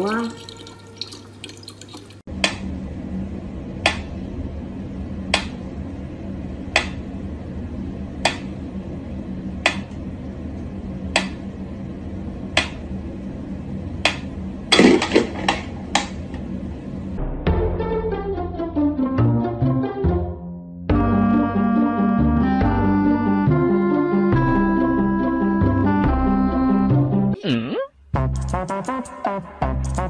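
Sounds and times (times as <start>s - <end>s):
low steady hum: 0.0s - 17.4s.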